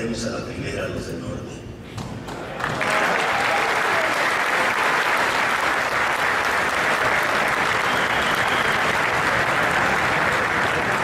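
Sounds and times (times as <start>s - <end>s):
large crowd applauding: 2.6s - 11.0s.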